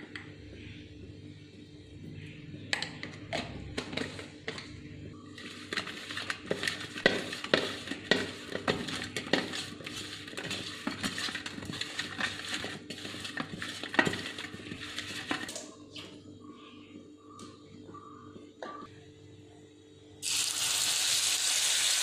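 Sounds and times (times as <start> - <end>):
fish scraping in steel bowl: 5.4 - 15.4.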